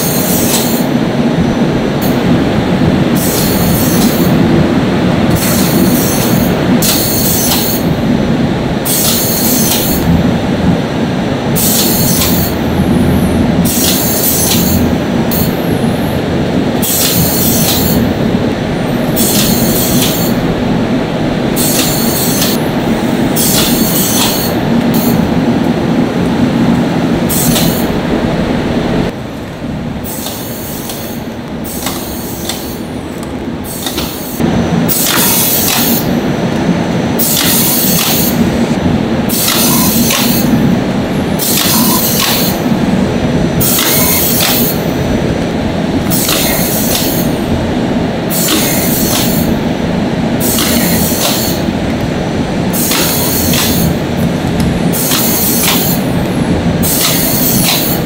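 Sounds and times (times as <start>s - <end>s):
machinery low hum: 0.0s - 58.0s.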